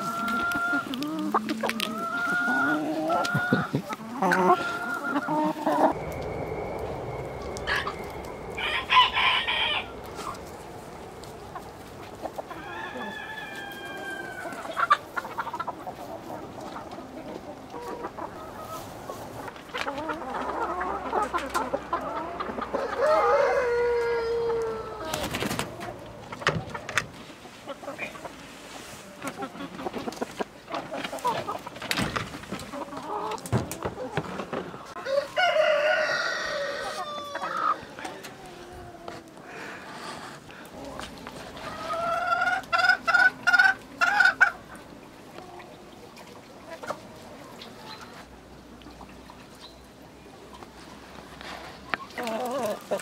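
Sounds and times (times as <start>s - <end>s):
chickens clucking: 0.0s - 53.0s
rooster crowing: 4.5s - 11.2s, 12.4s - 14.7s, 22.7s - 25.1s, 35.0s - 37.9s
low steady rumble: 5.6s - 12.6s.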